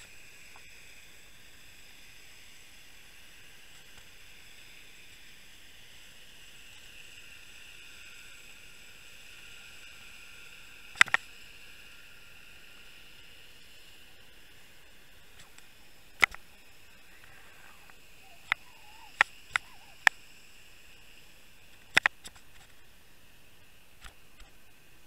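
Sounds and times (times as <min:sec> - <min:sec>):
camera recording hiss: 0:00.0 - 0:25.0
faint high whines: 0:00.0 - 0:25.0
sharp clicks: 0:15.4 - 0:16.5, 0:17.2 - 0:20.2, 0:21.7 - 0:22.7.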